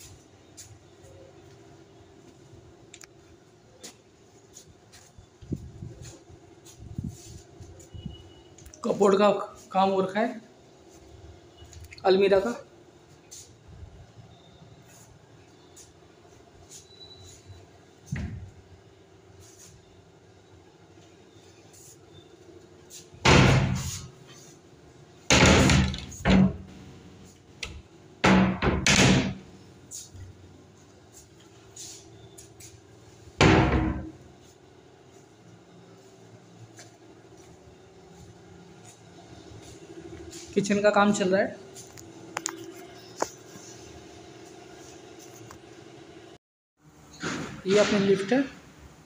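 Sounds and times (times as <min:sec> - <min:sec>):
wooden wardrobe doors banging: 0:23.2 - 0:24.0, 0:25.3 - 0:26.7, 0:28.2 - 0:29.4, 0:33.4 - 0:34.2.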